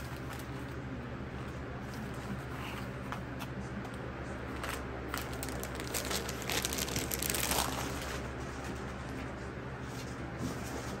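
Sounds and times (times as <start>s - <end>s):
steady low hum: 0.0s - 11.0s
packaging tearing and crinkling: 4.6s - 8.3s.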